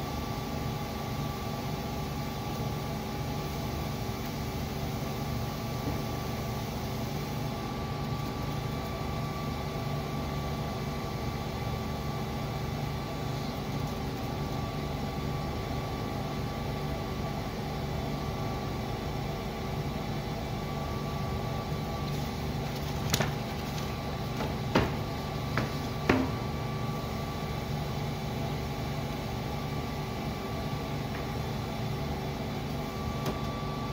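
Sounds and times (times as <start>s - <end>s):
paper guillotine motor hum: 0.0s - 33.9s
sharp knocks: 24.4s - 26.4s.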